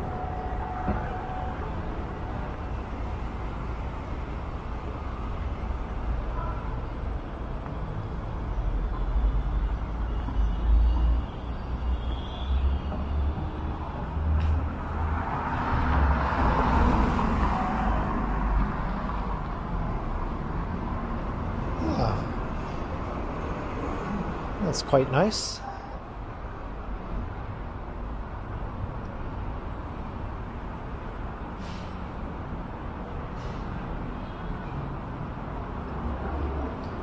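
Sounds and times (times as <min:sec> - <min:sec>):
passing vehicles rumbling: 0:00.0 - 0:37.0.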